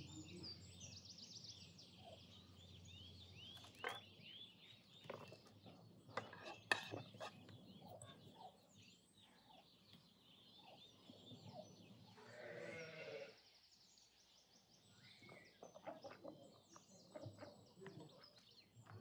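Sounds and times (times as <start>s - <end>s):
faint birdsong and chirping: 0.0s - 19.0s
sheep or goat bleating: 12.2s - 13.4s.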